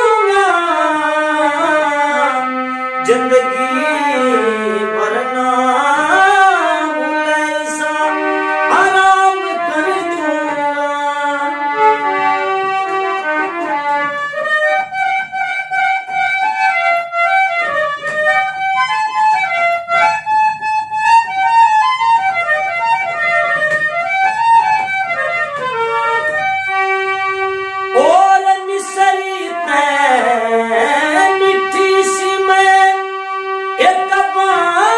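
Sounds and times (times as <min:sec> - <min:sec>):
man singing sliding notes: 0:00.0 - 0:12.4, 0:27.9 - 0:34.9
harmonium melody: 0:00.0 - 0:34.9.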